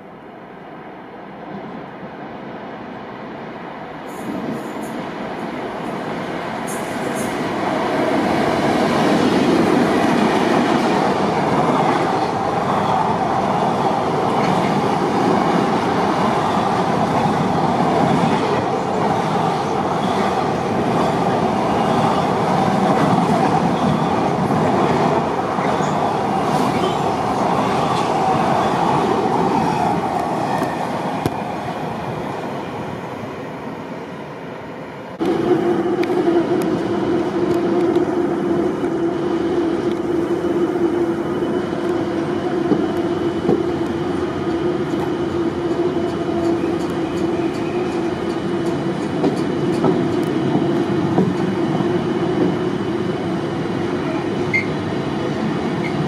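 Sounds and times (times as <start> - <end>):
train wheels on rails: 4.0 - 33.3, 35.2 - 56.0
clickety-clack over rail joints: 14.3 - 20.3, 42.6 - 44.0, 44.9 - 52.7.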